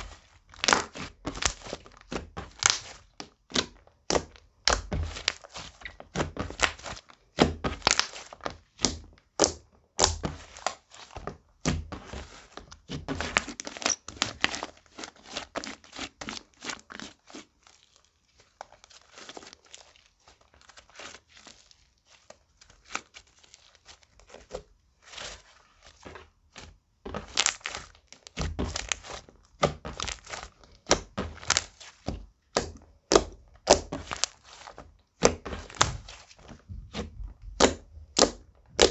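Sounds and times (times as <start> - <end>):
slime squelching and clicking: 36.9 - 38.9.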